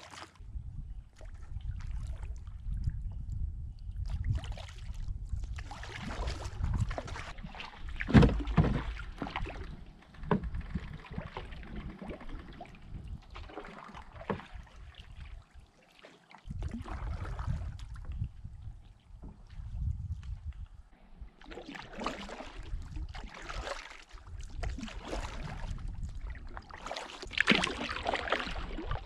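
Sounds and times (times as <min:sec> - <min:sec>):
paddle strokes in water: 0:00.0 - 0:00.4, 0:04.0 - 0:29.0
paddle knocking canoe hull: 0:07.1 - 0:12.3, 0:13.3 - 0:14.9.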